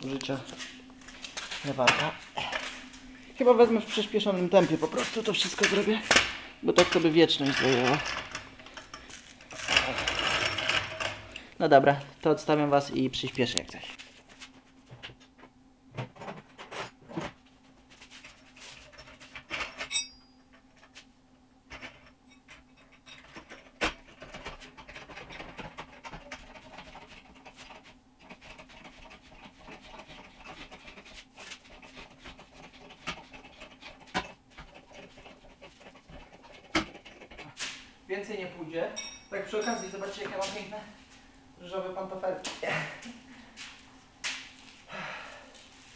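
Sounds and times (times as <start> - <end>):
floor jack creaking and clicking: 4.7 - 11.4.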